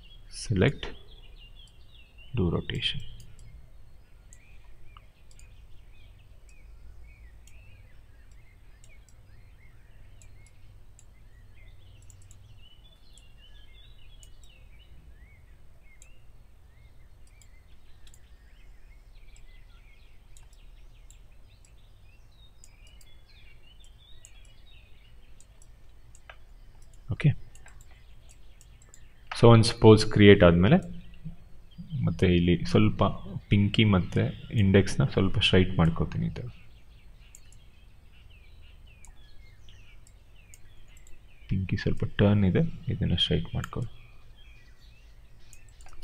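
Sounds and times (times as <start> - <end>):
low steady hum: 0.0 - 46.0
computer mouse clicks: 3.0 - 3.6, 4.3 - 5.6, 7.4 - 9.3, 10.2 - 11.2, 12.0 - 13.4, 14.2 - 14.6, 17.2 - 18.3, 20.3 - 21.8, 22.6 - 23.2, 23.8 - 24.6, 25.3 - 29.4, 37.2 - 37.7, 40.0 - 41.2, 45.4 - 46.0.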